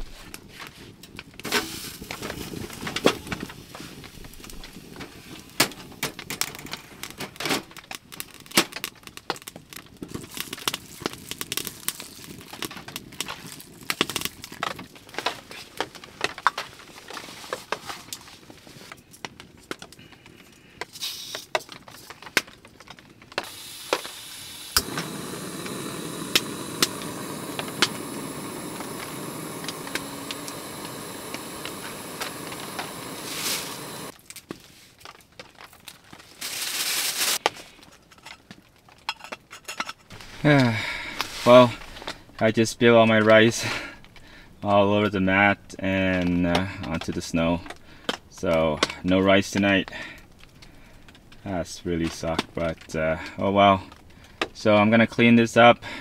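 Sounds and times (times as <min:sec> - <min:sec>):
wood fire crackling and popping: 0:00.0 - 0:56.0
gas burner hissing: 0:01.4 - 0:07.2, 0:20.0 - 0:21.7, 0:23.3 - 0:34.2, 0:40.1 - 0:54.9, 0:55.8 - 0:56.0
gas stove ignition click: 0:23.8 - 0:34.1.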